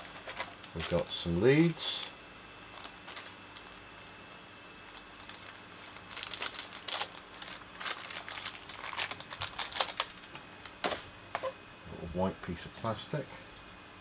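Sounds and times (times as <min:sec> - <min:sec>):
plastic bag crinkling: 0:00.0 - 0:10.8.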